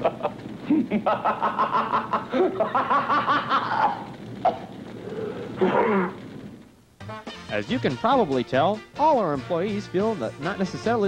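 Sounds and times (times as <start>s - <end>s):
person laughing: 0.0s - 4.7s.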